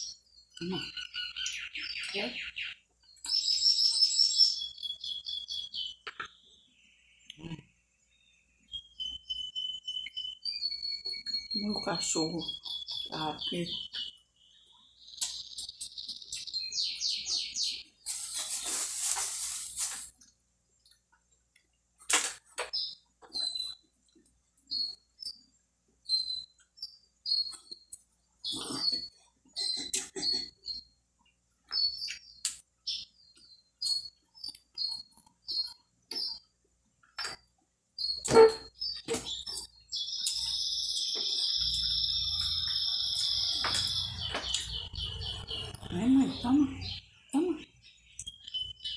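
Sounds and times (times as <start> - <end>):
rustling: 18.0 - 20.2
dog whining: 38.3 - 38.7.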